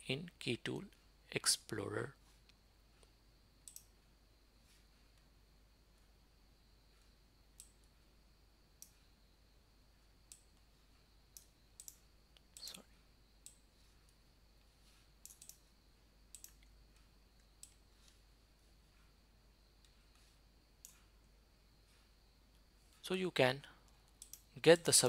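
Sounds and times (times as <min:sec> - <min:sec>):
computer mouse clicks: 0:02.4 - 0:04.0, 0:07.0 - 0:07.9, 0:08.8 - 0:09.0, 0:10.3 - 0:10.7, 0:11.3 - 0:12.8, 0:13.4 - 0:14.2, 0:15.2 - 0:15.7, 0:16.3 - 0:18.2, 0:20.8 - 0:21.1, 0:23.9 - 0:24.5.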